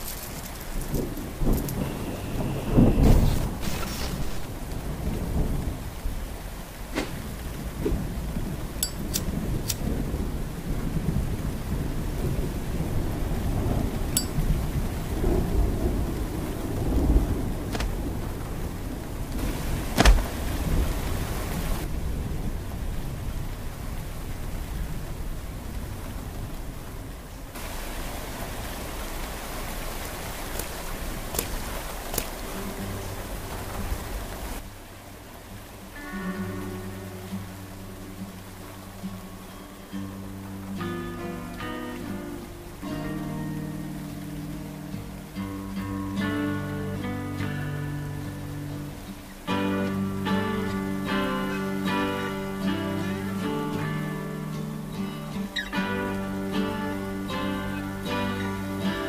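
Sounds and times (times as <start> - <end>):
steady rain: 0.0 - 59.0
low rumbling thunder: 0.9 - 27.8.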